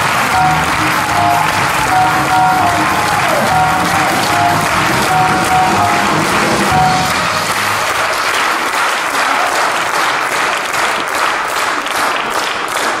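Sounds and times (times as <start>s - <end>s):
audience clapping: 0.0s - 13.0s.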